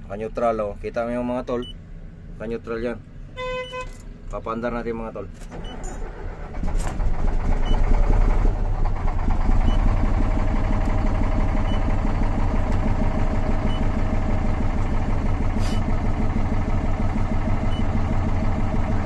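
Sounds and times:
diesel engine idling: 5.5s - 19.0s.

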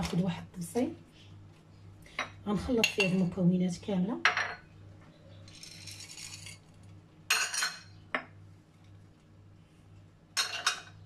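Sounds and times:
dishes clattering on stone: 7.3s - 8.4s, 10.4s - 11.0s.

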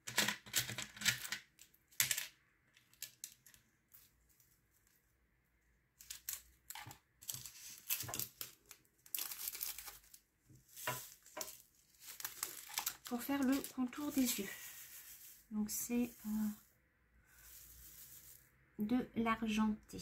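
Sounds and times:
faint plastic clicks and crinkles: 0.0s - 5.2s, 6.0s - 15.3s.

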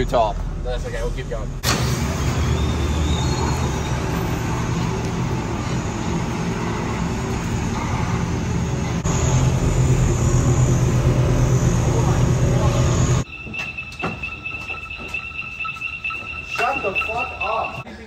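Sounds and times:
pickup truck engine rumbling: 0.0s - 13.3s.

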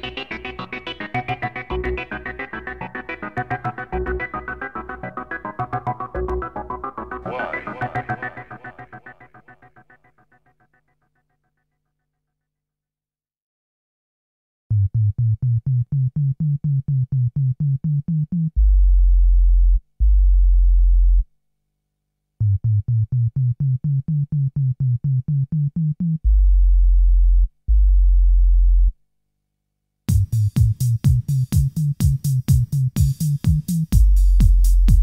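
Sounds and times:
electronic synthesizer music: 0.0s - 10.6s.

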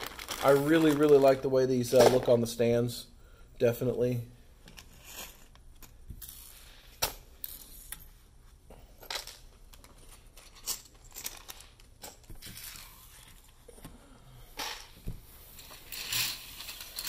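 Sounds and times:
plastic packaging crinkling: 0.0s - 2.3s.

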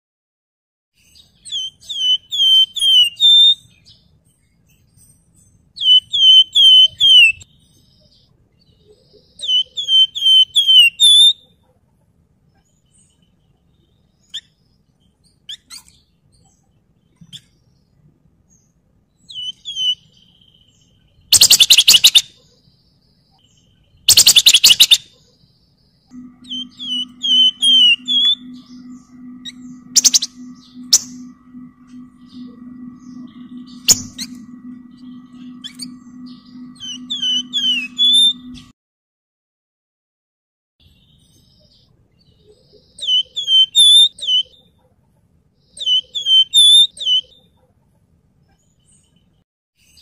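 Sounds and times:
bird whistling descending notes: 5.8s - 7.4s, 21.4s - 22.2s, 24.1s - 25.0s, 26.1s - 38.7s
bird rattling song: 21.4s - 22.2s, 24.1s - 25.0s.

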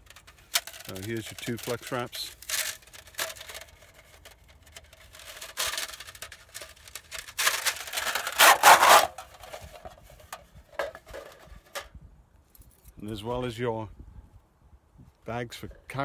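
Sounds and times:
thin metal sheets scraping: 0.0s - 11.9s.

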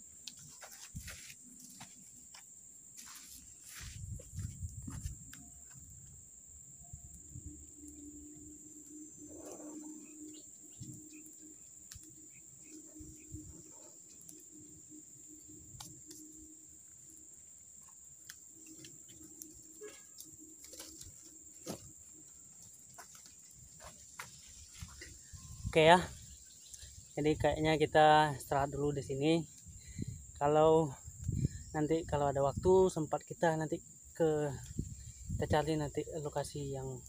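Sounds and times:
insects droning: 0.0s - 37.0s.

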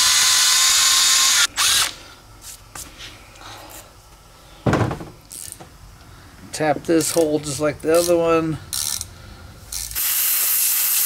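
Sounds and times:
drill boring through metal: 0.0s - 1.9s, 9.8s - 11.0s.

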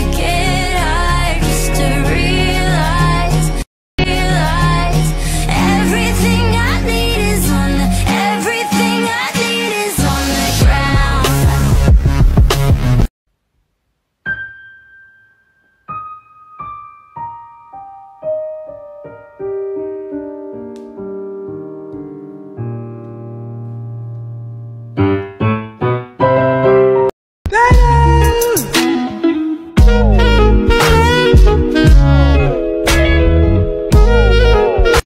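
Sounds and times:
solo piano music: 14.2s - 27.1s.

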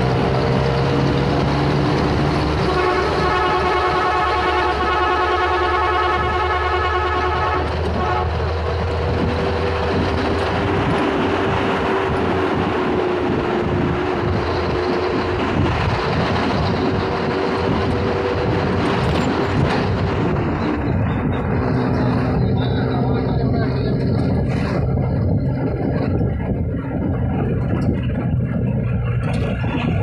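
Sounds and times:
road and wind noise: 0.0s - 30.0s
vehicle engine drone: 0.0s - 30.0s
vehicle horn blaring: 2.6s - 8.6s.

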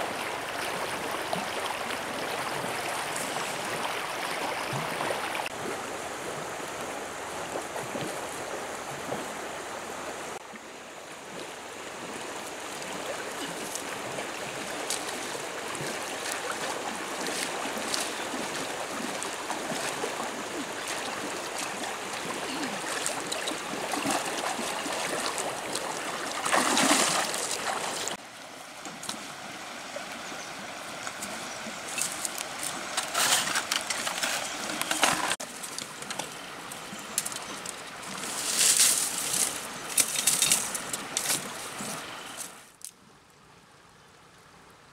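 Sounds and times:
feet wading through water: 0.0s - 9.4s, 10.4s - 28.2s
shallow river running: 0.0s - 44.9s
loud splash: 16.2s - 28.2s.

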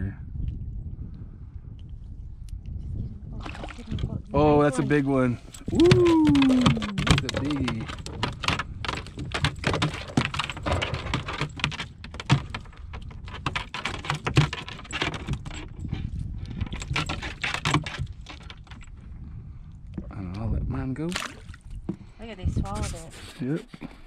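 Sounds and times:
hands clicking and rustling: 5.6s - 15.6s
sharp knocks: 5.7s - 15.4s.

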